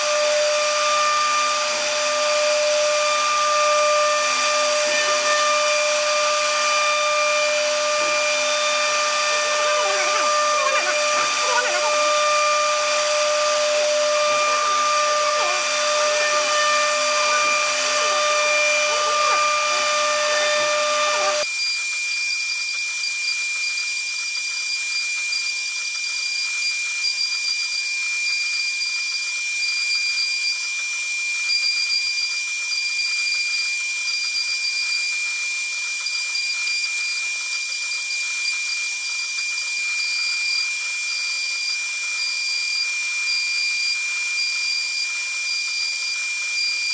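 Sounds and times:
router spindle whining: 0.0s - 21.5s
bit cutting hiss: 4.0s - 21.4s.

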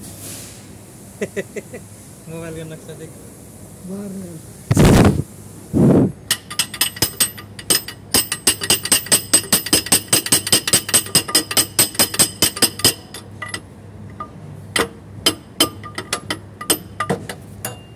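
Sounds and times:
hammer tapping on metal: 6.3s - 17.9s.

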